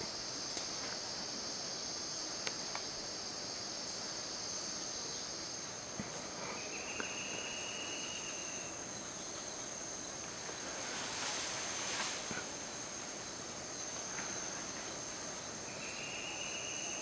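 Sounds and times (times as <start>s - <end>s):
higher-pitched insect: 0.0s - 17.0s
insects droning: 0.0s - 17.0s
rustling noise: 10.3s - 12.6s.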